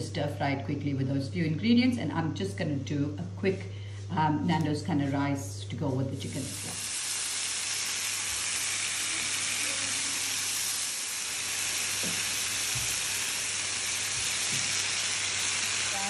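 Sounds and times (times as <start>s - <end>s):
chicken sizzling in a pan: 6.2s - 16.0s.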